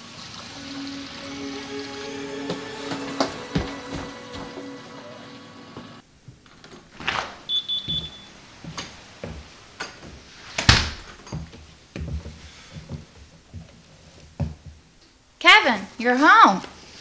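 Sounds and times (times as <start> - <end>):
footsteps: 0.5 - 14.8
front door opening and shutting: 0.6 - 11.4
high electronic beeps: 7.5 - 8.3.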